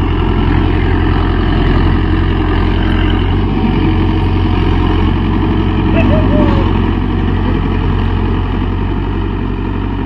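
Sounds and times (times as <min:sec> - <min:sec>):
tractor diesel engine under load: 0:00.0 - 0:10.0.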